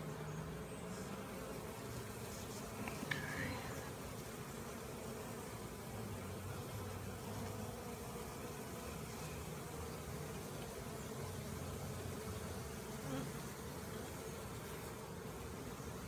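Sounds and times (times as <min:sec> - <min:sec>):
honeybees buzzing: 0:00.0 - 0:16.0.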